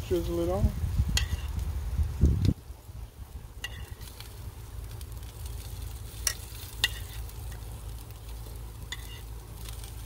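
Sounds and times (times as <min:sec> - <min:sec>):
marinade sizzling on a grill: 0:00.0 - 0:10.0.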